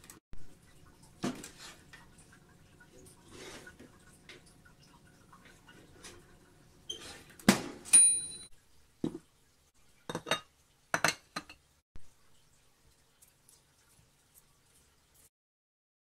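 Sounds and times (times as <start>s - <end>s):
kitchenware clatter with metallic ring: 7.8s - 8.5s, 10.1s - 11.6s
ceramic plates clinking: 10.1s - 11.6s.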